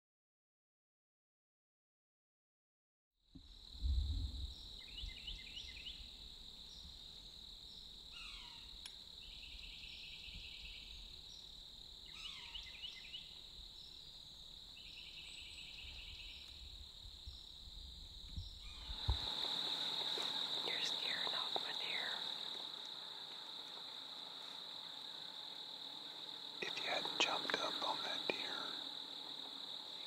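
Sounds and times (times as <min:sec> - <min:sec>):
crickets chirring: 0:03.4 - 0:30.0
low rumble: 0:03.8 - 0:04.6
bird singing trills: 0:12.1 - 0:14.1.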